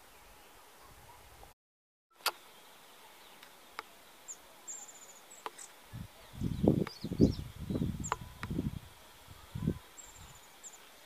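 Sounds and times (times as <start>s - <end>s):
songbird calls: 2.2s - 11.0s.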